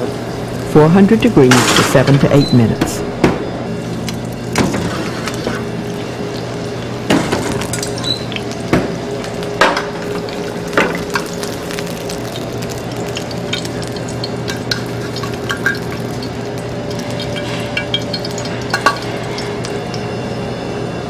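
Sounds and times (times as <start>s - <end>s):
steady low hum: 0.0s - 21.0s
fish sizzling in oil: 3.7s - 20.1s.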